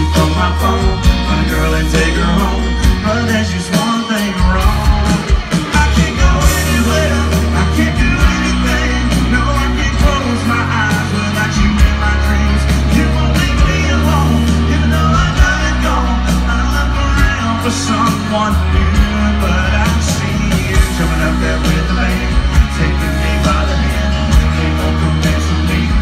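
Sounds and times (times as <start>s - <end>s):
drums: 0.0s - 26.0s
heavy bass: 0.0s - 26.0s
person singing: 0.0s - 26.0s.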